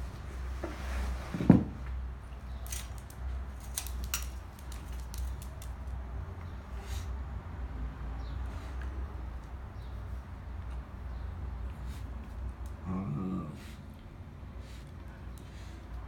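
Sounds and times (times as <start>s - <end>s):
claws clicking on tiles: 2.6s - 6.0s.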